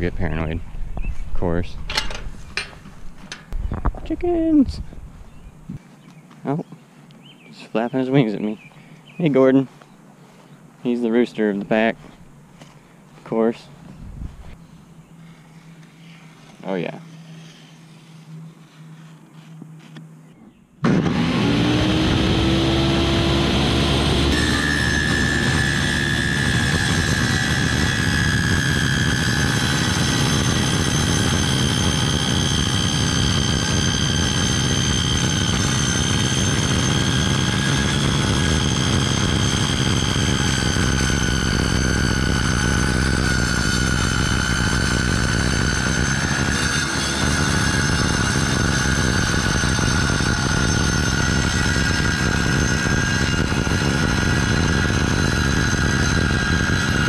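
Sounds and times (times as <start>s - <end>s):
circular saw cutting wood: 15.1s - 19.1s, 20.8s - 57.0s.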